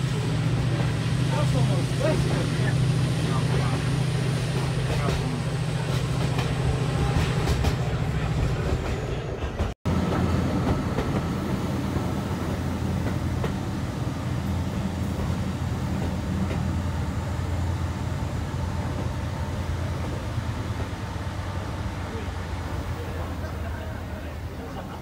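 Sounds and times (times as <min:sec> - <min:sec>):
diesel locomotive engine drone: 0:00.0 - 0:25.0
wheels clattering on rail: 0:04.3 - 0:12.3.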